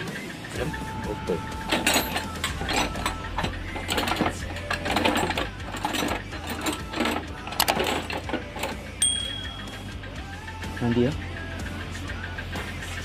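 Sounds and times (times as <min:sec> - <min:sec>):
metallic clicking of hand tools: 0:01.6 - 0:10.0.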